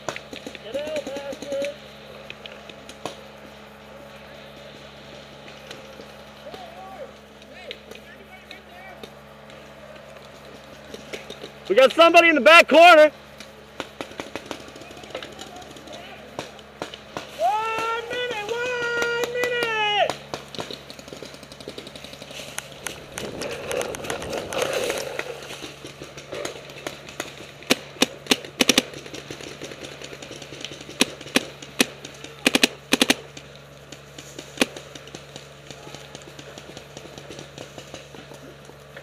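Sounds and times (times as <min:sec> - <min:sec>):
paintball markers firing: 0:13.4 - 0:38.6.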